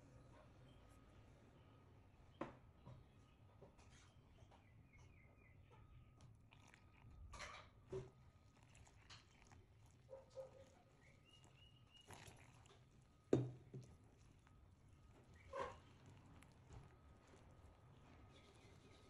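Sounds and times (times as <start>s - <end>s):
hand mixing dough squishing: 5.8s - 19.0s
jug knocking on table: 13.4s - 13.6s.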